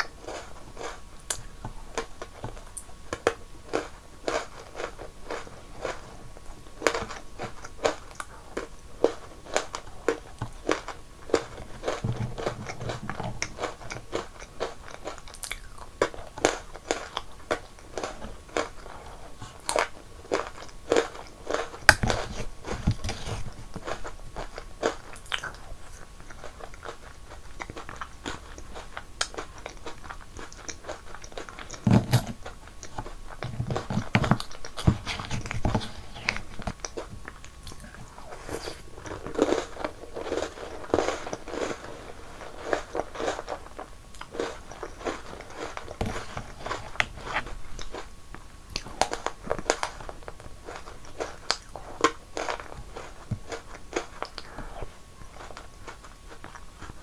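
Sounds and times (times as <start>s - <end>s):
crunchy chewing of biscuits: 0.0s - 57.0s.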